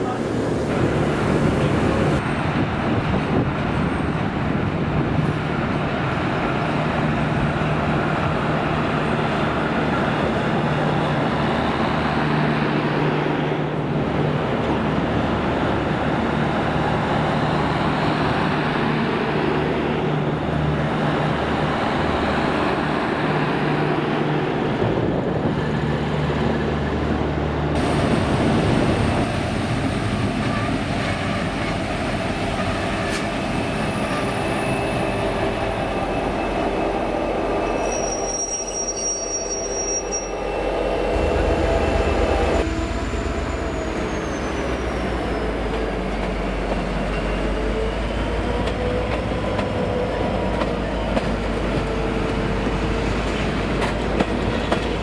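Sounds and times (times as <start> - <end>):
train engine drone: 0.0 - 55.0
train rolling noise: 0.0 - 55.0.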